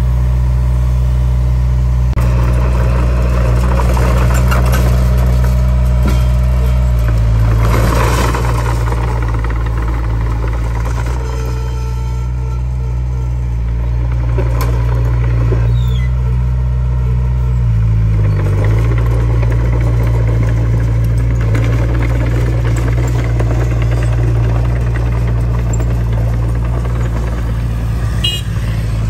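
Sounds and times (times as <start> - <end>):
bulldozer diesel engine running: 0.0 - 29.0.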